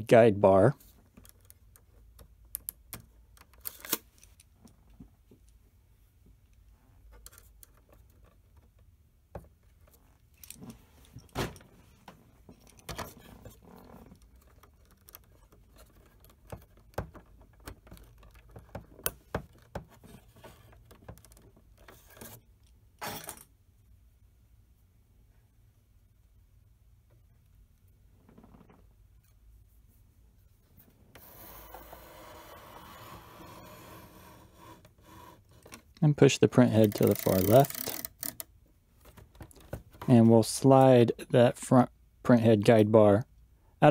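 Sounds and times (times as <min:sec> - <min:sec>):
low steady hum: 0:00.0 - 0:31.9
screwdriver scraping metal clip: 0:36.6 - 0:38.5.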